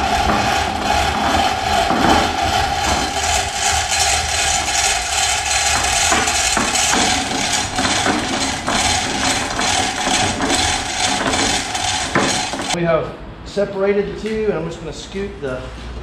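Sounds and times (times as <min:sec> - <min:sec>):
hand hoist rapid clicking: 0:00.0 - 0:12.8.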